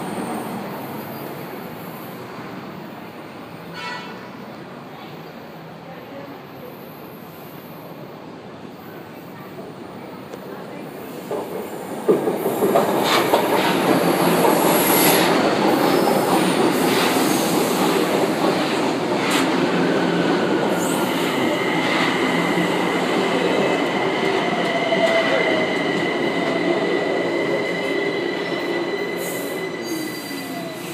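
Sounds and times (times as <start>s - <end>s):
train wheels rolling on rails: 10.2s - 30.9s
high squeal from wheels: 12.5s - 18.0s, 20.7s - 22.8s, 24.4s - 30.9s.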